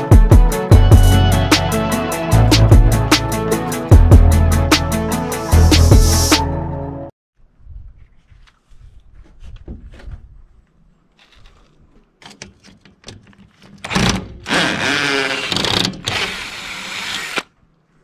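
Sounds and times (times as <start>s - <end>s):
power drill backing out screw: 13.8s - 17.5s.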